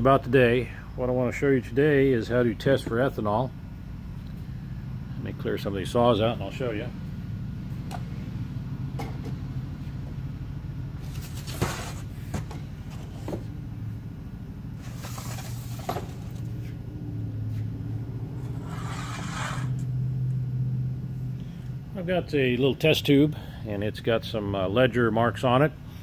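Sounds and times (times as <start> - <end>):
steady low hum: 0.0 - 26.0
knocks and clunks on workbench: 9.0 - 9.4
scraping on workbench: 11.2 - 13.5, 18.4 - 19.8.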